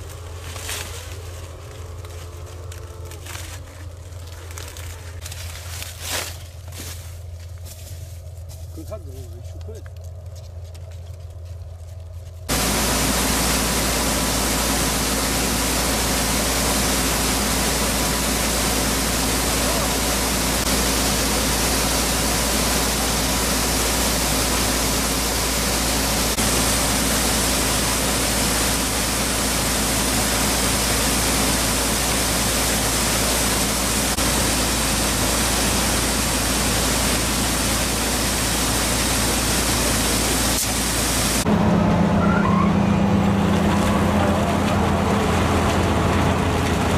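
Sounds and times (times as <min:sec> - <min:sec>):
grain pouring from auger spout: 0:12.5 - 0:41.5
engine and auger hum: 0:12.5 - 0:46.9
loud engine drone: 0:12.5 - 0:46.9.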